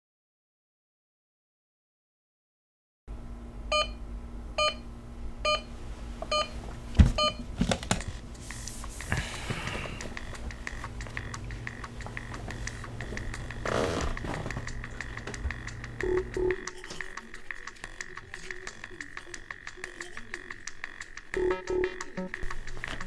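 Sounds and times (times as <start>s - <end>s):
bedding rustling: 13.7s - 14.7s
alarm clock beeping: 15.0s - 22.5s.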